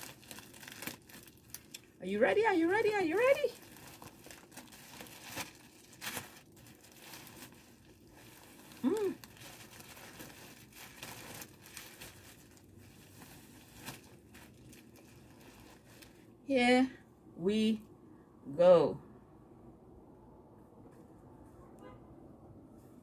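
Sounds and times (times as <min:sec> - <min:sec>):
plastic bag crinkling: 0:00.0 - 0:16.4.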